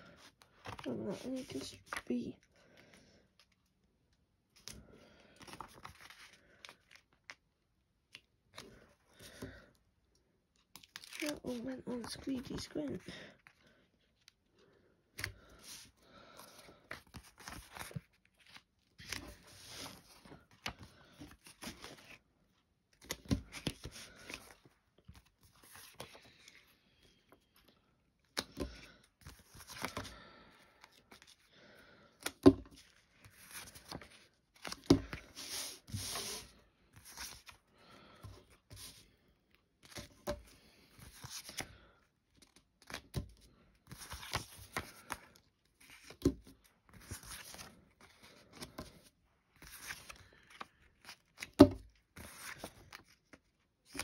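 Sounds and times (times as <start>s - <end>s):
packaging crinkling and tearing: 10.8s - 11.6s.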